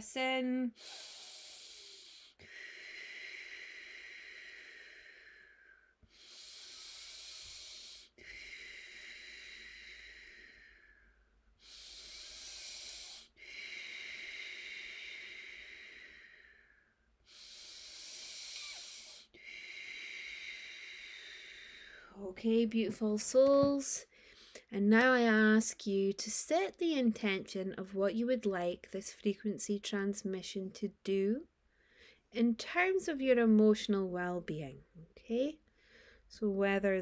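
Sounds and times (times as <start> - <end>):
woman breathing deeply: 0.8 - 22.2, 31.7 - 32.3, 35.7 - 36.3.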